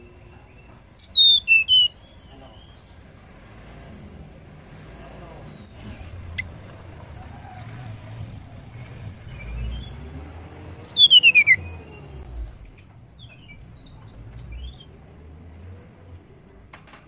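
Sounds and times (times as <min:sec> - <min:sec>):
bird singing: 0:00.0 - 0:03.1, 0:05.3 - 0:15.0.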